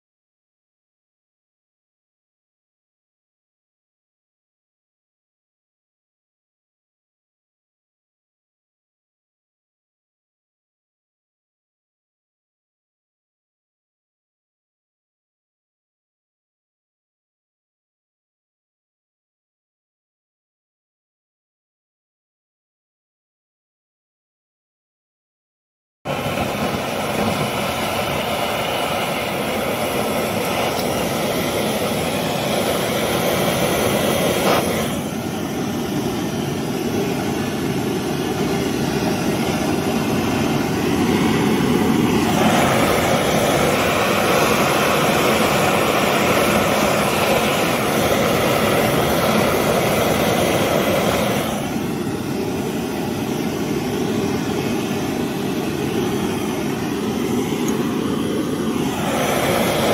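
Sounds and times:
gas burner running: 26.1s - 59.9s.

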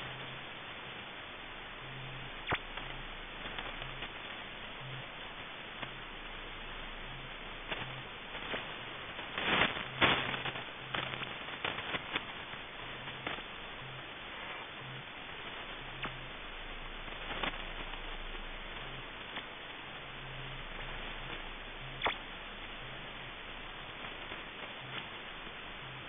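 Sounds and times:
faint low tone pulsing: 0.0s - 11.4s, 12.0s - 26.0s
radio static hiss: 0.0s - 26.0s
sharp crackling clicks: 1.9s - 5.0s, 7.0s - 14.0s, 14.8s - 16.4s, 17.0s - 19.5s, 20.2s - 23.3s.

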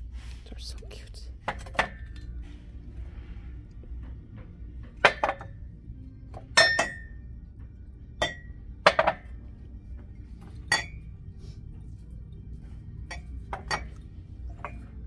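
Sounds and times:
ceramic mugs clinking: 5.0s - 5.6s, 6.3s - 7.2s, 8.1s - 9.4s, 10.4s - 11.2s, 13.0s - 15.0s.

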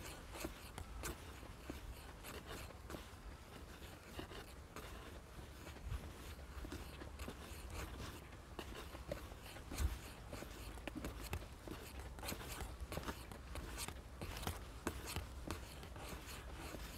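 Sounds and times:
footsteps scuffing: 0.0s - 16.9s.

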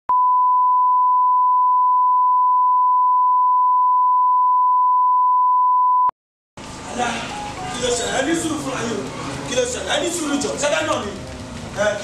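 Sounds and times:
sine test tone: 0.1s - 6.1s.

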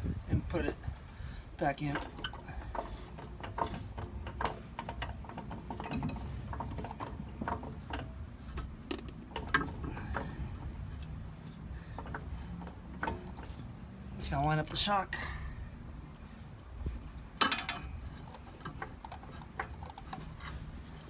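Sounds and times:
jack metal clicks and clanks: 0.4s - 21.0s.

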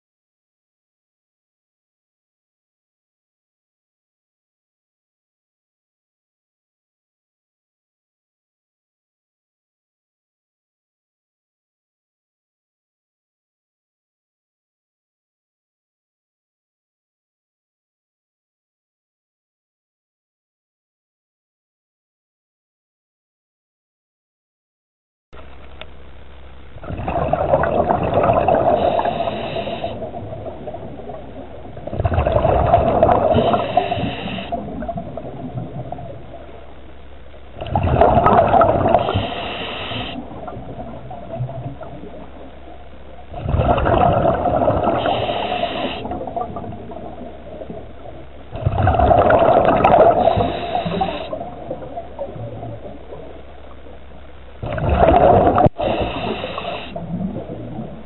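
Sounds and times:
gurgling rush of bubbles: 26.7s - 58.0s
diver breathing through regulator: 28.5s - 30.2s, 33.1s - 34.7s, 38.8s - 40.3s, 44.8s - 46.2s, 49.9s - 51.4s, 55.6s - 57.0s.

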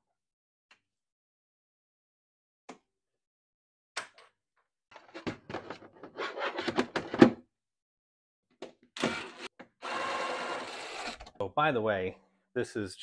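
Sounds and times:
cordless drill drilling plastic: 9.0s - 11.3s.

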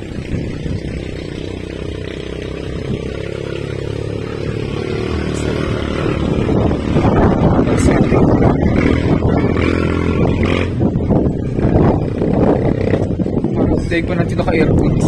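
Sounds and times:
engine running: 0.0s - 15.0s.

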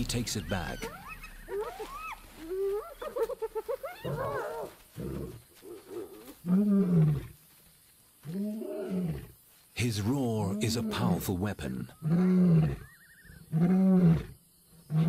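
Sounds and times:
hyenas squealing and giggling: 0.4s - 6.2s
lion growling and roaring: 12.0s - 15.0s.

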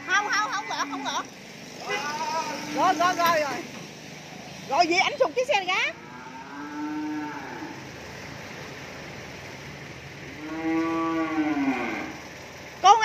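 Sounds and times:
cattle mooing: 0.0s - 3.1s, 5.9s - 7.9s, 10.3s - 12.3s.

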